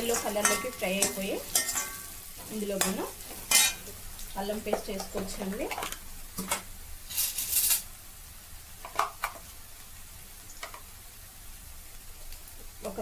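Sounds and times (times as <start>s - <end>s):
spatula scraping pan: 0.0s - 3.9s
onions sizzling in oil: 0.0s - 13.0s.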